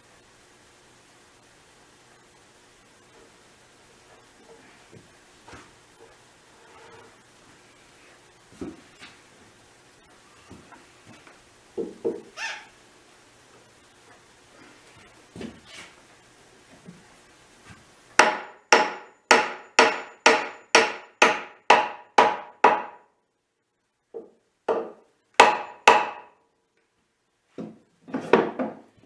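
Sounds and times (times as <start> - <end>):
hammer striking wooden dowel: 18.2 - 23.1, 24.2 - 26.4.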